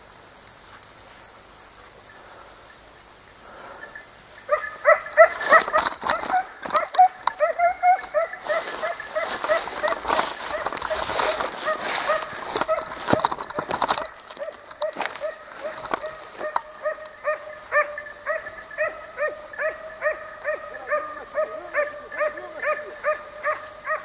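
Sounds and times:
dry brush rustling: 4.4s - 24.0s
hunting dog yelping: 4.5s - 24.0s.

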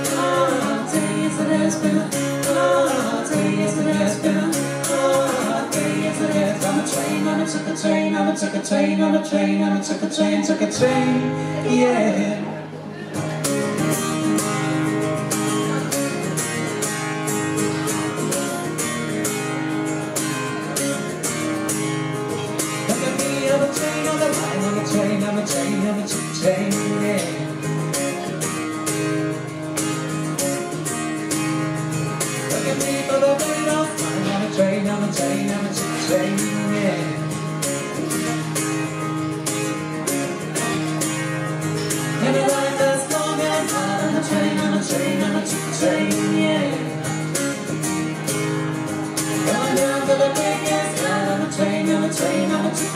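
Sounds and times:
man singing into a microphone: 0.0s - 13.2s, 22.7s - 27.9s, 32.3s - 38.6s, 41.8s - 47.5s, 49.3s - 52.9s
guitar strumming: 0.0s - 52.9s.

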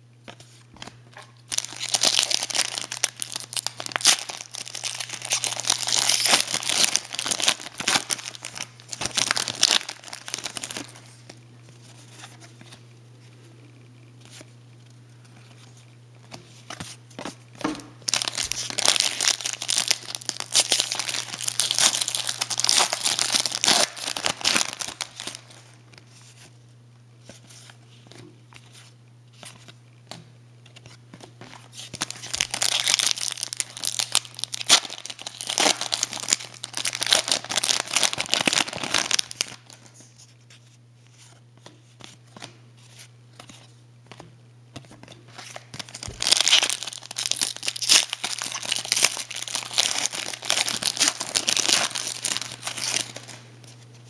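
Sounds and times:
steady low hum: 0.0s - 36.6s
card pack wrapper crinkling: 0.3s - 12.8s, 18.0s - 26.4s, 30.8s - 40.3s, 45.3s - 54.0s.

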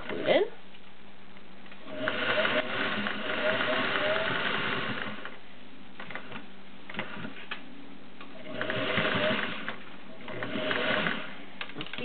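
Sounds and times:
sewing machine motor whir: 1.8s - 5.4s, 8.3s - 11.4s.

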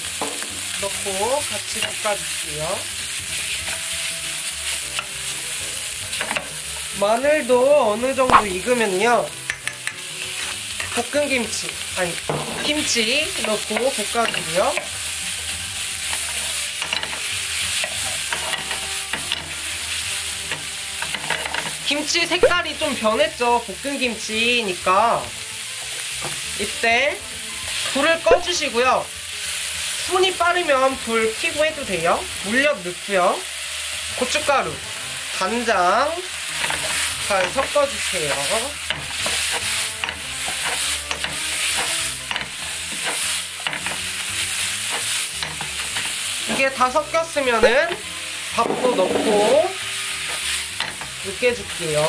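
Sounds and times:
meat sizzling in a frying pan: 0.0s - 52.0s
metal ladle scraping a pan: 10.1s - 11.0s, 48.6s - 51.1s
ladle knocking and scraping a pan: 38.3s - 44.2s, 48.6s - 49.6s.

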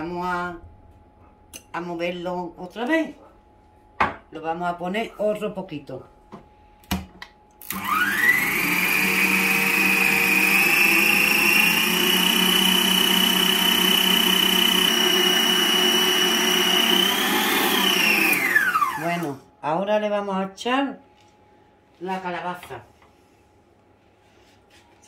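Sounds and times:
stand mixer motor whine: 7.6s - 19.4s.

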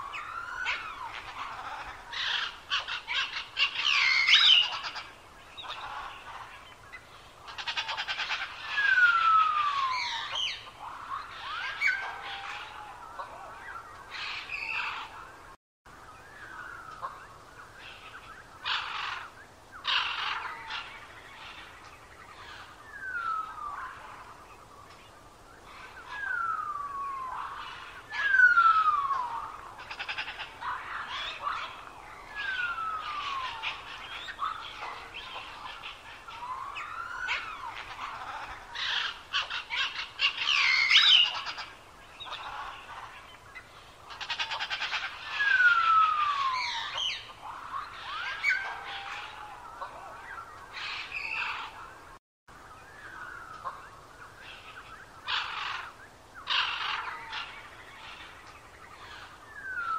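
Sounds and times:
birds chirping and trilling: 0.0s - 59.9s.

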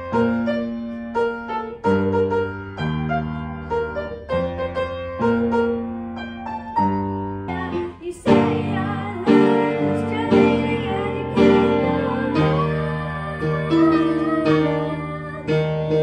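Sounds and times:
piano playing slow notes: 0.0s - 16.0s
boy singing: 7.5s - 16.0s.

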